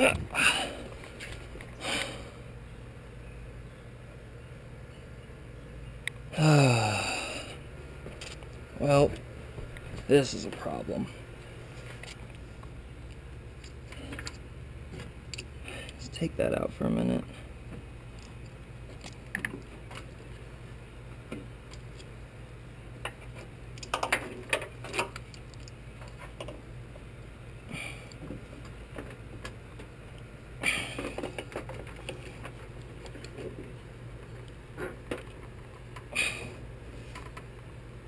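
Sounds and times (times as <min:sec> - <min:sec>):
steady low hum: 0:00.0 - 0:38.0
plastic clicks and rattles: 0:23.8 - 0:26.6.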